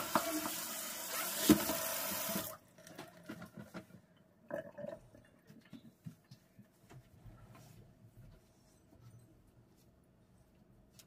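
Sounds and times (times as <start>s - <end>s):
faucet water running into sink: 0.0s - 2.6s.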